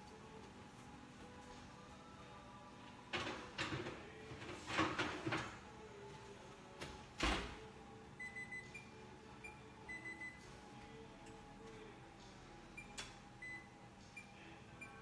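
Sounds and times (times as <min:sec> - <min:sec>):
kitchen timer beeps: 0:08.2 - 0:10.4, 0:12.8 - 0:15.0.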